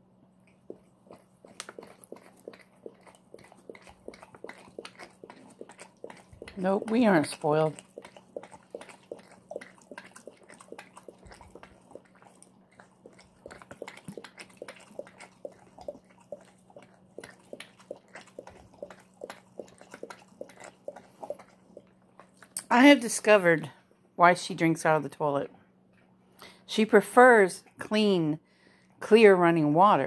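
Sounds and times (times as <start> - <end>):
dog lapping water: 0.5 - 22.7.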